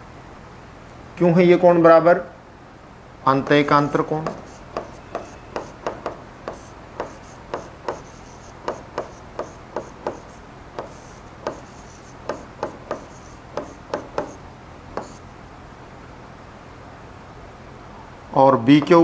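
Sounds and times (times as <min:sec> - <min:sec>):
pen tapping on glass: 0:04.2 - 0:14.4, 0:15.0 - 0:15.2.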